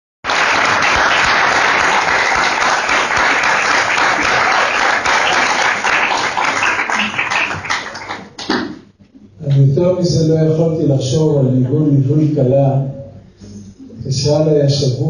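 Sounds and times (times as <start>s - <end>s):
audience applauding: 0.2s - 8.8s.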